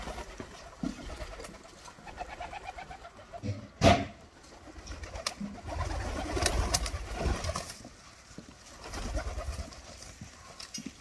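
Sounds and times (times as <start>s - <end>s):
doves cooing: 0.0s - 3.8s.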